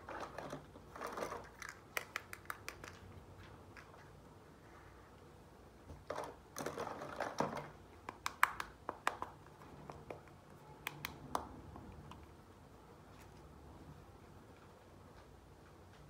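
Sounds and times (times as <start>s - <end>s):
plastic toy pieces rustling: 0.0s - 3.1s
plastic clicks and taps: 7.4s - 11.5s.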